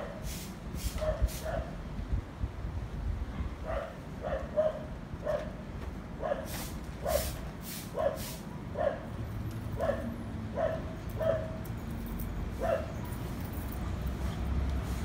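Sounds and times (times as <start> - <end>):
dog barking: 1.0 - 1.7, 3.6 - 5.6, 6.2 - 7.3, 7.9 - 9.1, 9.8 - 11.6, 12.6 - 13.0.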